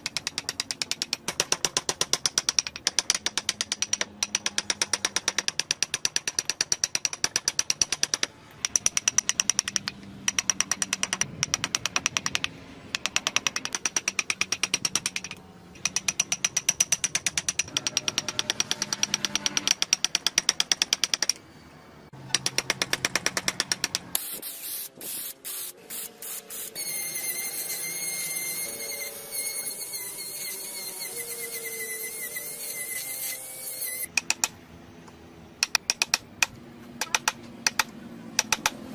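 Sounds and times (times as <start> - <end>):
carving gouge tapping through wood: 0.0 - 21.4, 34.1 - 34.6, 35.6 - 38.8
rotary tool grinding wood: 26.3 - 34.1.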